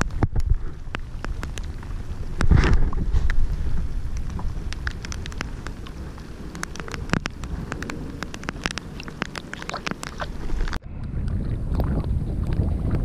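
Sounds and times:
raindrops hitting kayak: 0:00.0 - 0:13.0
wind rumble on microphone: 0:00.0 - 0:13.0.

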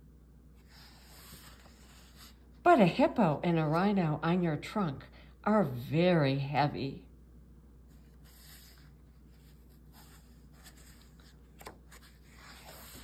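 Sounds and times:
book pages rustling: 0:00.6 - 0:02.6, 0:07.9 - 0:13.0.

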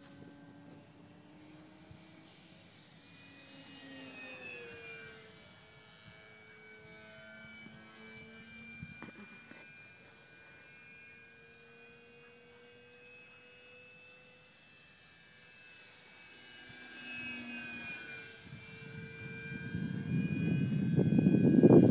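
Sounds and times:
model airplane motor whining: 0:00.0 - 0:21.9.

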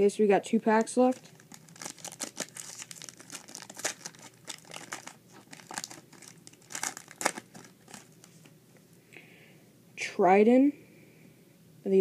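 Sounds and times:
foil wrapper crinkling: 0:00.7 - 0:08.5.

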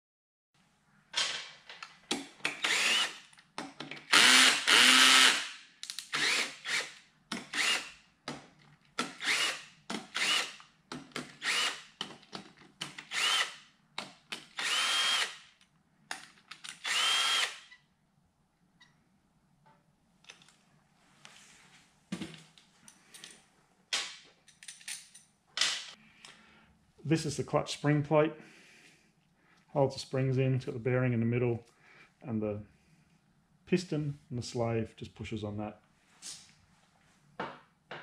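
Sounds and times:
cordless drill whining: 0:02.6 - 0:03.3, 0:04.1 - 0:05.4, 0:06.1 - 0:07.9, 0:09.1 - 0:10.6, 0:11.4 - 0:11.9, 0:13.1 - 0:13.6, 0:14.6 - 0:15.4, 0:16.8 - 0:17.8.

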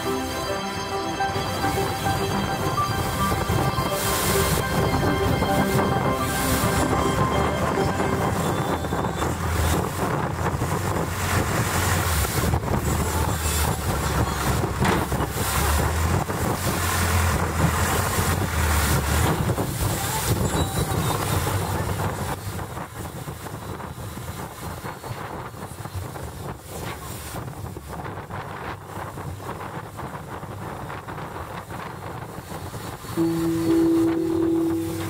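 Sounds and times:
boat engine running: 0:00.0 - 0:23.2, 0:33.1 - 0:35.0
wind buffeting microphone: 0:07.9 - 0:33.3.

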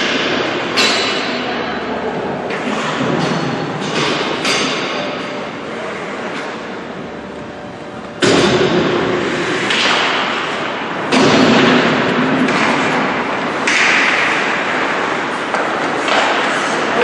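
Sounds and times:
hockey puck thuds: 0:08.2 - 0:17.0
skates scraping on ice: 0:09.1 - 0:10.7, 0:12.1 - 0:17.0.

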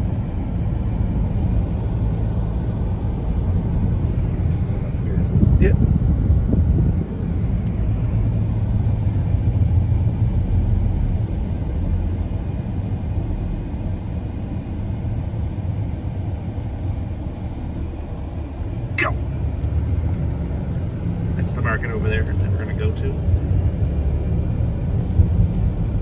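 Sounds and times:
car road and engine noise: 0:00.0 - 0:26.0.

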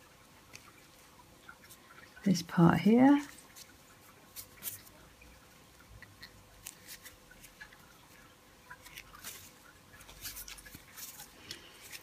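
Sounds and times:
gloved hands rustling and clicking: 0:03.2 - 0:05.0, 0:05.8 - 0:12.0.

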